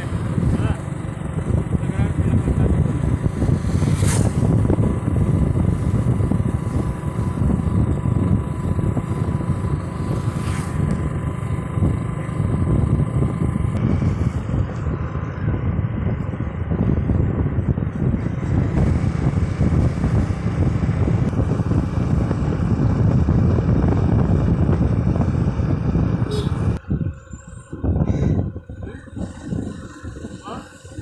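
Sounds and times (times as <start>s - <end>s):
motorcycle engine running: 0.0s - 31.0s
wind buffeting microphone: 0.0s - 31.0s.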